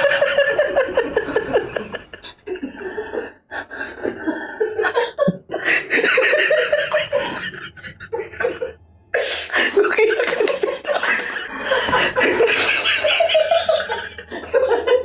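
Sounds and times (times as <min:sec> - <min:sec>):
man laughing hard: 0:00.0 - 0:03.2, 0:04.7 - 0:08.8, 0:09.5 - 0:15.0.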